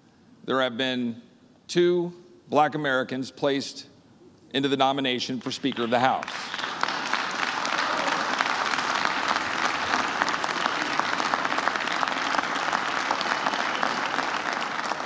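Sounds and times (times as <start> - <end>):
crowd applauding: 5.4 - 15.0.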